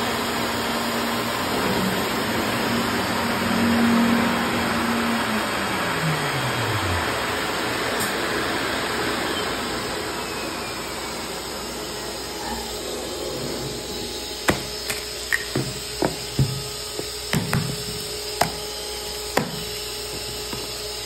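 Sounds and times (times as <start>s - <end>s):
router spindle winding down: 0.1s - 17.3s
vacuum rushing noise: 1.2s - 15.3s.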